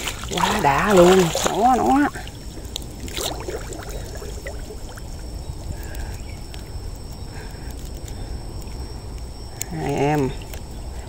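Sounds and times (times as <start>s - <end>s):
wading through muddy water: 0.0s - 8.1s.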